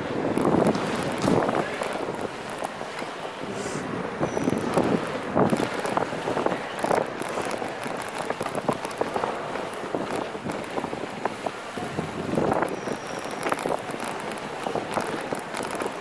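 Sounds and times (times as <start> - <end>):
bike clicks and knocks: 0.0 - 3.5, 4.2 - 16.0
bike tyres rolling: 0.0 - 16.0
wind buffeting microphone: 0.0 - 16.0.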